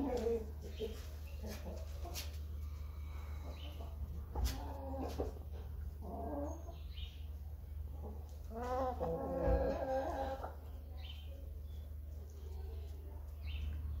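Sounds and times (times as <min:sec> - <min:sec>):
chickens clucking: 0:00.0 - 0:14.0
steady low hum: 0:00.4 - 0:08.6.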